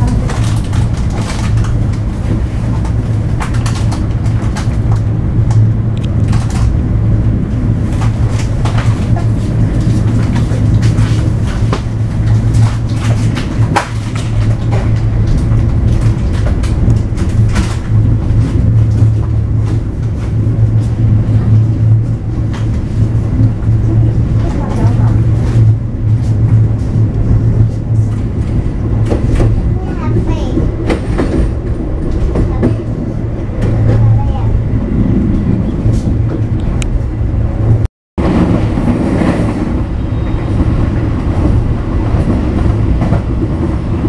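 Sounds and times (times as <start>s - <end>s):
train wheels clicking and knocking: 0.0s - 34.5s
train hum and rumble: 0.0s - 44.0s.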